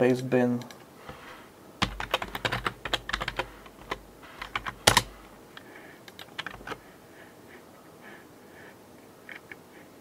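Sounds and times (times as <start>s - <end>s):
computer keyboard typing: 1.8s - 5.2s, 6.1s - 6.8s.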